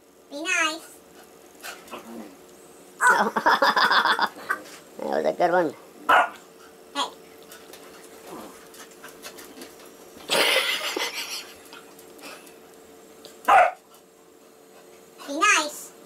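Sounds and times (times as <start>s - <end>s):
dogs growling: 1.2s - 2.5s, 7.4s - 12.4s
dog barking: 6.1s - 6.4s, 13.5s - 13.8s.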